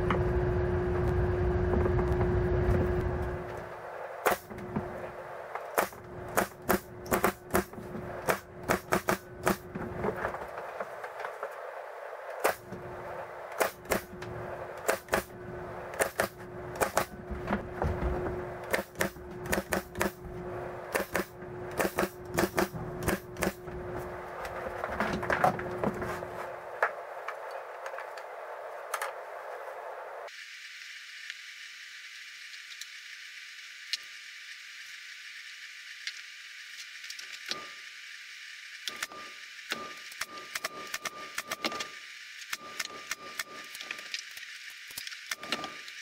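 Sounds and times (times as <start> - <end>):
nail gun firing into wood: 4.3 - 4.6, 5.8 - 9.7, 13.5 - 14.1, 14.8 - 15.3, 15.9 - 17.2, 18.6 - 20.2, 20.9 - 23.6.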